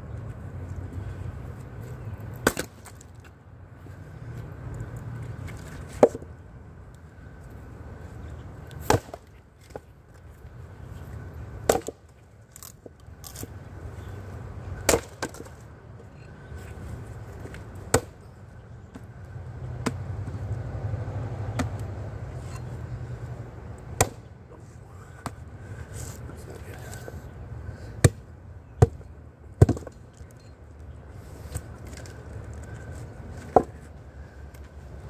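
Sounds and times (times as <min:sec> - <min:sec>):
axe striking firewood: 0:02.4 - 0:03.0, 0:08.8 - 0:09.3, 0:11.6 - 0:12.0, 0:14.8 - 0:15.5, 0:17.9 - 0:18.2, 0:21.5 - 0:21.8, 0:24.0 - 0:24.3, 0:28.0 - 0:28.2, 0:28.8 - 0:30.0.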